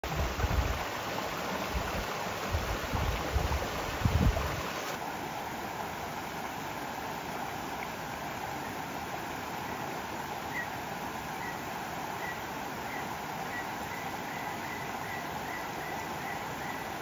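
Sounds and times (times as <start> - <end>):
river water rushing: 0.0 - 17.0
wind buffeting microphone: 1.8 - 4.7.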